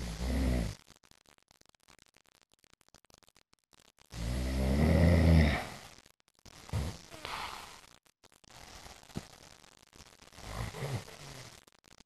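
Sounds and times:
person snoring: 0:00.0 - 0:00.8, 0:04.2 - 0:05.8, 0:06.7 - 0:07.8, 0:10.4 - 0:11.6.

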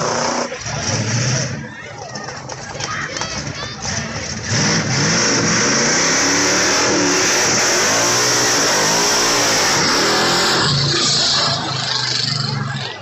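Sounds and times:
car engine revving: 0:00.0 - 0:01.7, 0:03.4 - 0:13.0.

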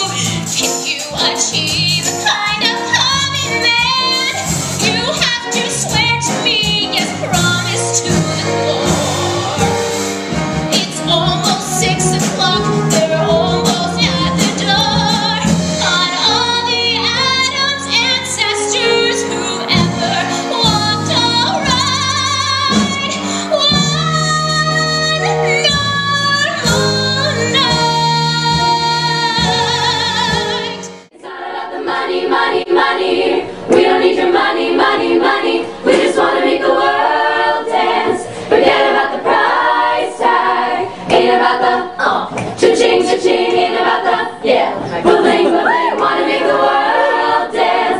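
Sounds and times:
woman singing with accompaniment: 0:00.0 - 0:09.9, 0:10.6 - 0:31.1
a cappella group singing: 0:00.0 - 0:47.9.

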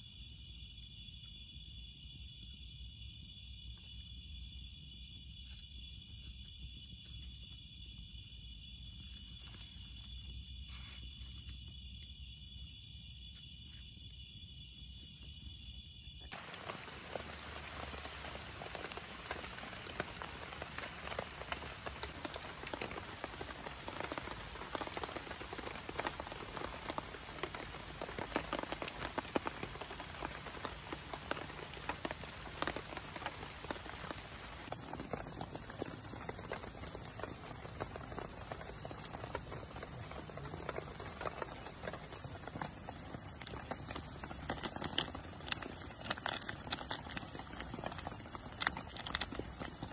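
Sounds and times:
campfire crackling and popping: 0:14.8 - 0:49.9.

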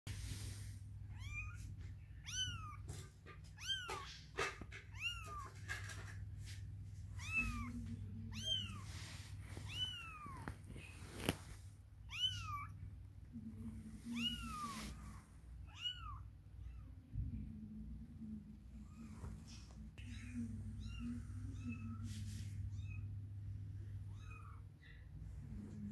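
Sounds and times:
kitten meowing: 0:01.1 - 0:02.9, 0:03.5 - 0:05.6, 0:07.2 - 0:08.9, 0:09.6 - 0:11.3, 0:12.0 - 0:12.8, 0:14.1 - 0:15.0, 0:15.6 - 0:16.9.

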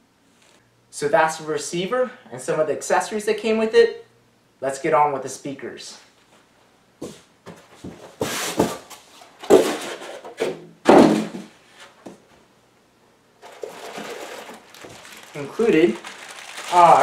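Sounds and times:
steady rustle: 0:13.4 - 0:17.0.

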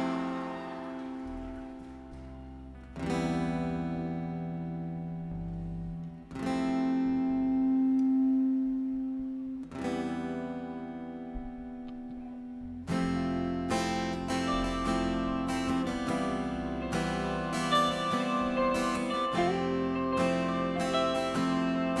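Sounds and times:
acoustic guitar strumming chords: 0:00.0 - 0:22.0
low bass notes: 0:00.0 - 0:22.0.

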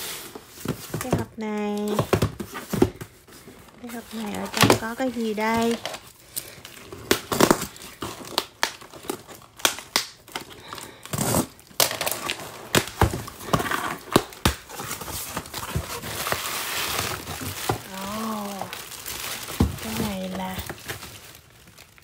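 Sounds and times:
bubble wrap crinkling: 0:00.0 - 0:22.0.

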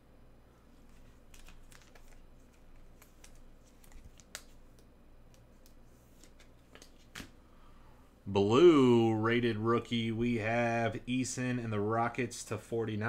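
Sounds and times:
trading cards rustling: 0:00.7 - 0:07.3.

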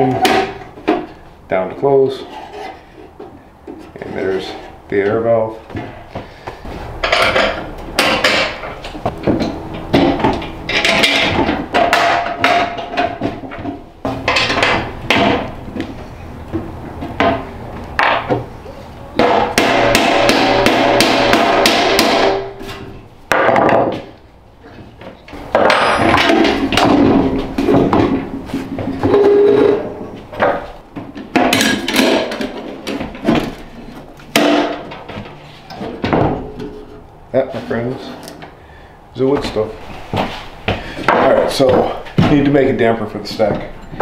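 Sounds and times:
metal clanks and knocks: 0:00.0 - 0:01.2, 0:02.2 - 0:18.5, 0:19.2 - 0:38.5, 0:40.2 - 0:44.0
metal scraping: 0:01.9 - 0:03.2, 0:25.4 - 0:30.8.

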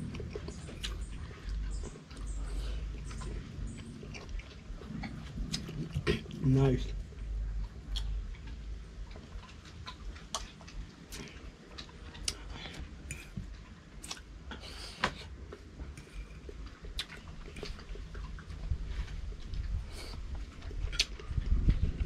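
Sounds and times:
person chewing: 0:00.0 - 0:22.0
spoon clicking and scraping on plate: 0:13.1 - 0:13.4.

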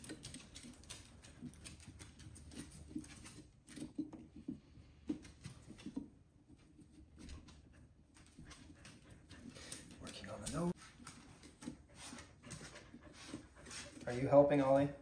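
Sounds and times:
dog claws clicking on wooden floor: 0:00.0 - 0:14.0
knife sawing through pumpkin rind: 0:11.7 - 0:14.8.

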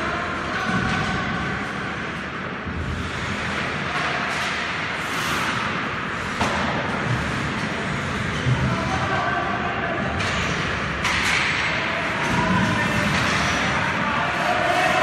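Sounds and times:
indoor rink din: 0:00.0 - 0:15.0
skates scraping ice: 0:01.6 - 0:09.1, 0:12.0 - 0:15.0.

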